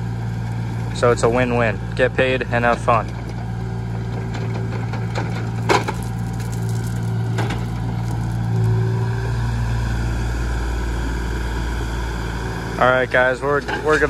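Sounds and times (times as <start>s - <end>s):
diesel engine running: 0.0s - 14.0s
wood snapping and cracking: 4.6s - 8.8s.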